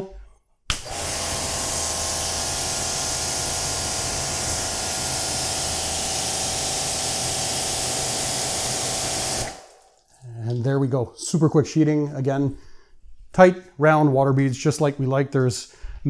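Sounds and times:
pressure washer spray hissing: 0.7s - 9.7s
washer pump humming: 0.7s - 10.0s.

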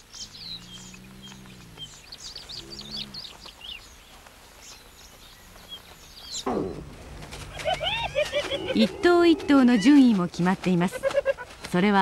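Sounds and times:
small birds chirping: 0.0s - 12.0s
low drawn-out animal calls: 0.3s - 3.4s.

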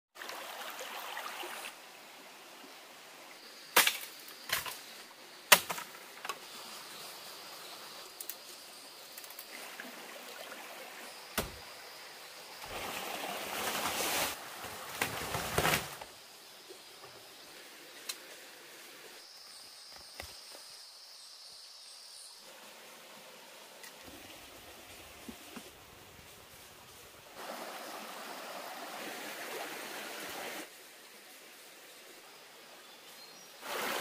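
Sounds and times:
rustling or scraping: 13.4s - 16.1s.

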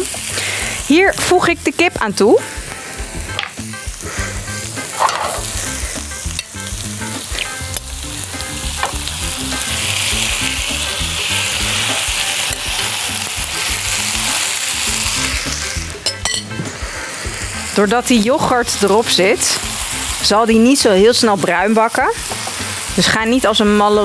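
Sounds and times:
chicken sizzling in a frying pan: 0.0s - 24.0s
spoon clinking on glass bowl: 16.0s - 16.5s.

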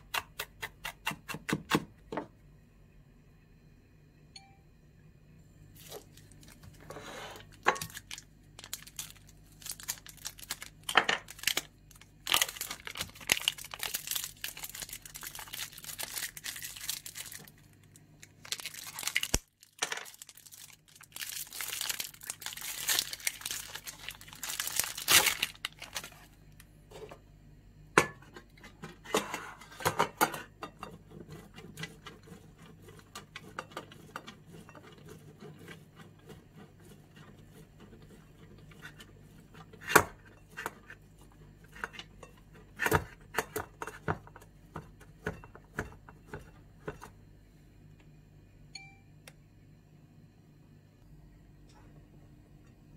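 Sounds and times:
plastic packaging crinkling: 5.8s - 6.8s, 7.4s - 26.6s.

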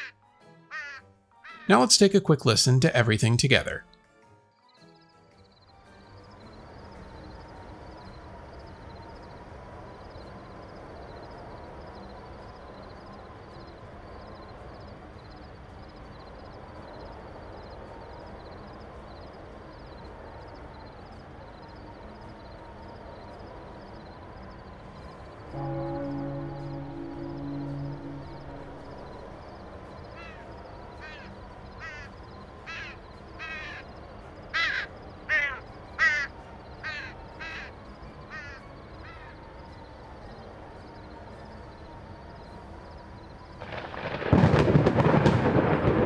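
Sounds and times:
crow cawing: 0.7s - 1.7s, 30.2s - 30.4s, 31.0s - 32.1s, 32.7s - 33.9s, 34.6s - 37.7s, 38.3s - 39.3s
steady low background noise: 1.7s - 3.8s, 5.4s - 46.0s
crickets chirping: 4.7s - 46.0s
steady background ambience: 5.4s - 46.0s.

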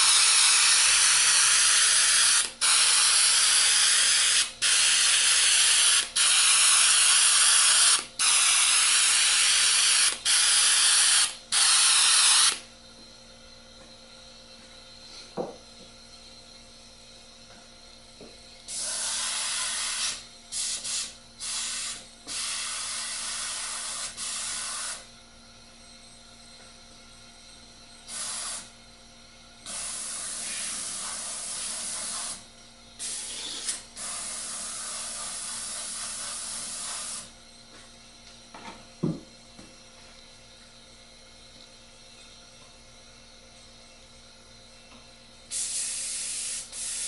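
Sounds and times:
airbrush spraying hiss: 18.7s - 25.1s, 28.1s - 28.7s, 29.7s - 37.3s, 45.5s - 47.0s.

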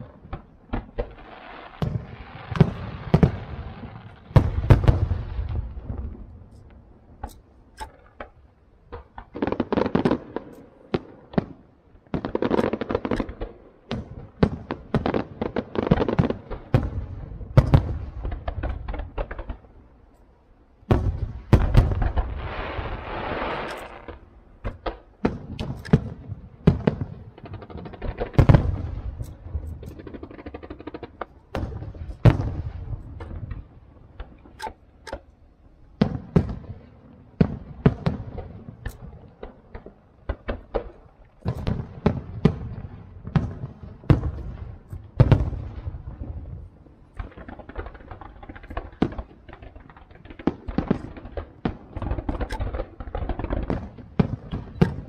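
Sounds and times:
firework shells bursting: 20.9s - 35.4s, 47.2s - 55.0s.

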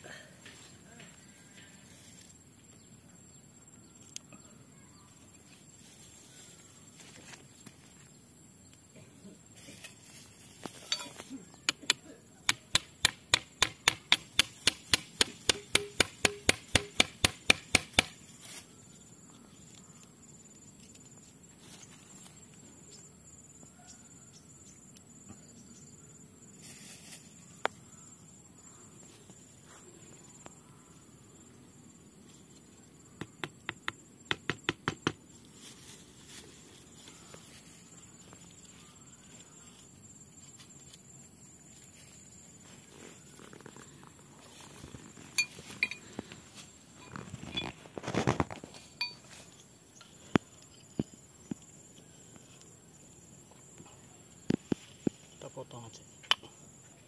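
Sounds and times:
insects buzzing: 0.0s - 57.0s
steel bar striking roots: 12.5s - 18.1s.

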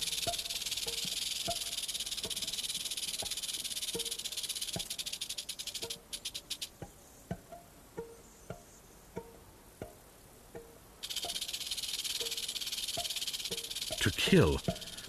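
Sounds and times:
rattlesnake tail rattle buzzing: 0.0s - 6.7s, 11.0s - 14.0s, 14.6s - 15.0s.

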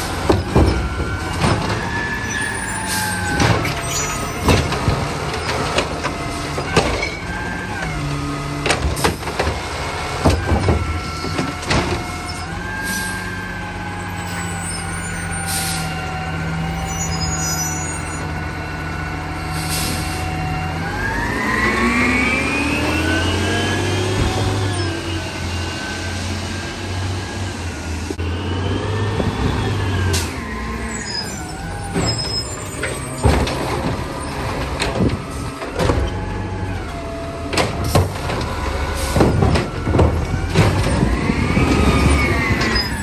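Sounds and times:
garbage truck engine: 0.0s - 43.0s
garbage truck arm clunking: 37.4s - 43.0s.

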